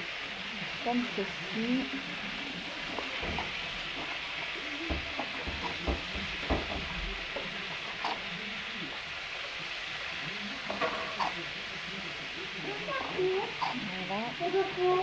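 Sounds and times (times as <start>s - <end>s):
steady hiss: 0.0s - 15.0s
knife knocking on cutting board: 4.9s - 7.1s.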